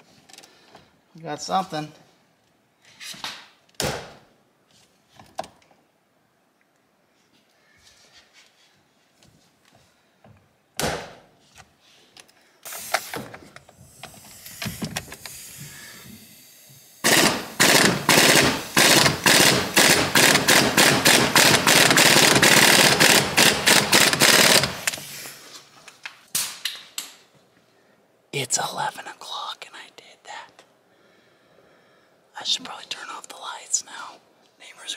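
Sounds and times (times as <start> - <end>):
impact wrench rattling: 17.0 - 25.0.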